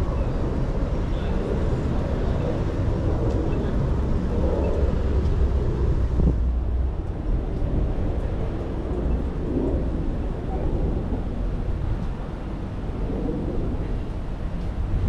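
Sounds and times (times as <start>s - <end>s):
wind and road noise rumble: 0.0s - 15.0s.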